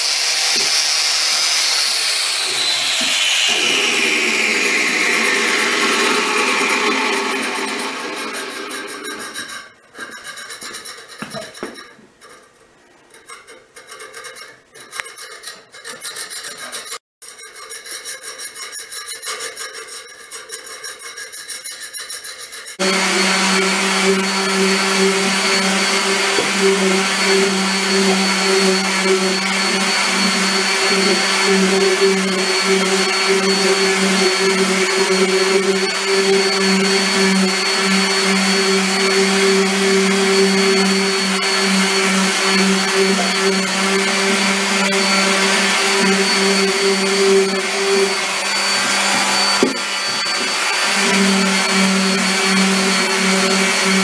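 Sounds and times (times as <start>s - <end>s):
orbit sander on wood: 0.0s - 9.7s, 22.5s - 54.0s.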